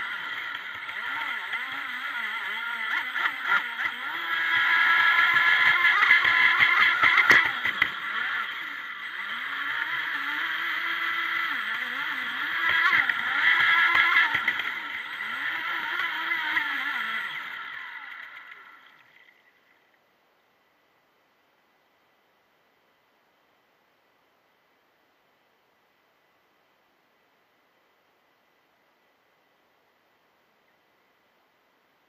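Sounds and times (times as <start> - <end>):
electric motor whining: 0.0 - 19.1.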